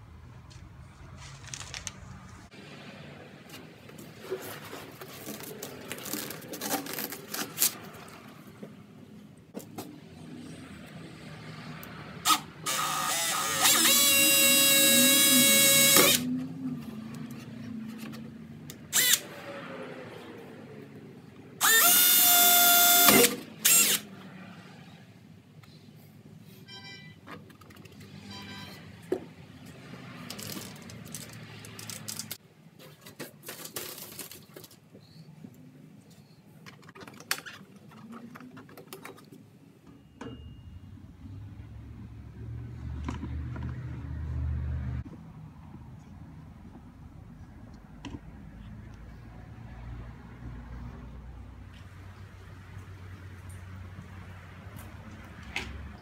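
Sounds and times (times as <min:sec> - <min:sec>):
drill motor whining: 0:12.3 - 0:16.3, 0:18.9 - 0:19.3, 0:21.6 - 0:24.0.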